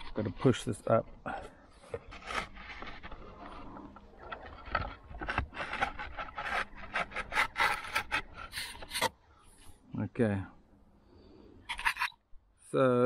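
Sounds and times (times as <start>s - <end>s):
slate scraping against slates: 0.0s - 9.2s, 11.6s - 12.2s.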